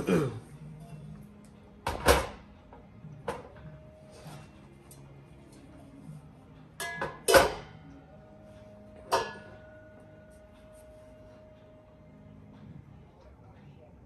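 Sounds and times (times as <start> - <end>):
metal exhaust tips clanking: 6.8 - 8.1, 8.8 - 10.4.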